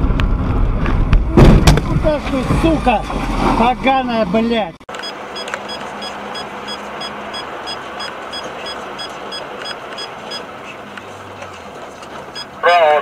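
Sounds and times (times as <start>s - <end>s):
car road and engine noise: 0.0s - 13.0s
short high-pitched electronic beeps: 5.0s - 10.4s.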